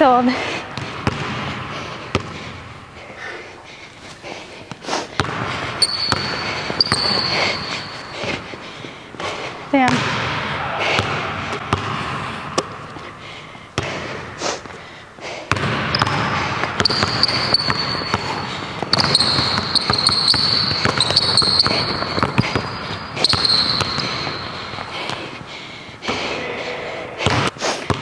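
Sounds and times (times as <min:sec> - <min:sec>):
basketball bouncing on wooden floor: 0:00.7 - 0:02.4, 0:05.2 - 0:08.4, 0:09.2 - 0:10.3, 0:11.0 - 0:12.0, 0:15.5 - 0:25.4
sneaker squeaks: 0:05.2 - 0:08.7, 0:15.5 - 0:25.4.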